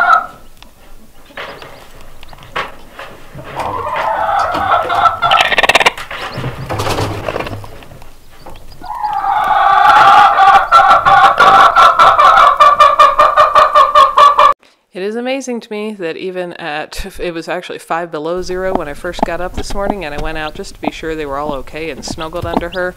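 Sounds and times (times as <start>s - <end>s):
hen clucking: 0.0s - 14.6s, 18.4s - 22.9s.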